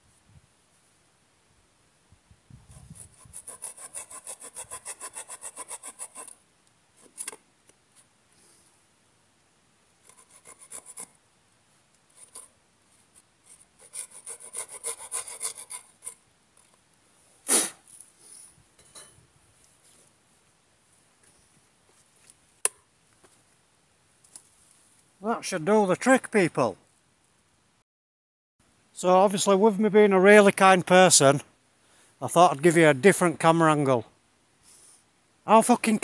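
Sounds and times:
knife saw cutting wood: 0:02.7 - 0:06.4, 0:10.1 - 0:11.1, 0:12.1 - 0:12.5, 0:13.5 - 0:16.2.

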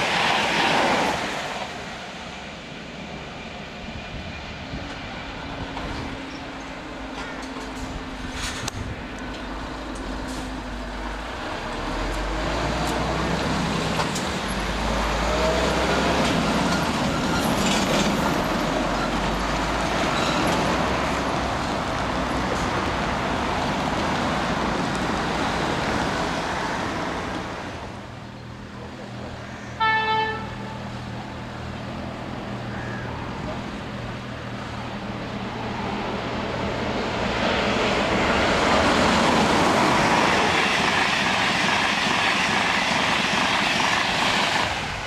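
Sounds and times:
passing traffic rumble: 0:00.0 - 0:45.0
train horn blast: 0:29.8 - 0:30.9.

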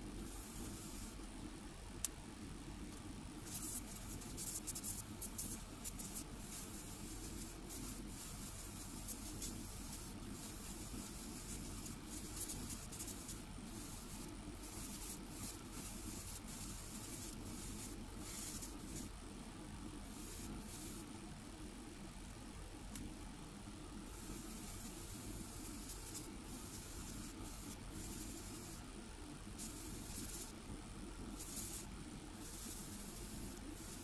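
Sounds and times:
steady low hum: 0:00.0 - 0:34.0
airbrush spraying hiss: 0:00.3 - 0:01.2, 0:03.4 - 0:19.1, 0:24.2 - 0:28.8, 0:29.5 - 0:30.6, 0:31.3 - 0:34.0.

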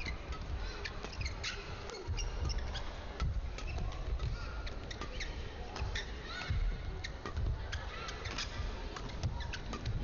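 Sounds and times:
shoes squeaking on court: 0:00.0 - 0:10.0.

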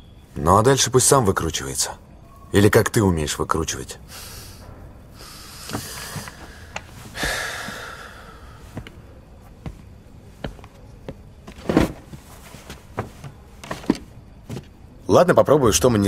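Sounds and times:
footsteps on hard floor: 0:08.7 - 0:14.7.

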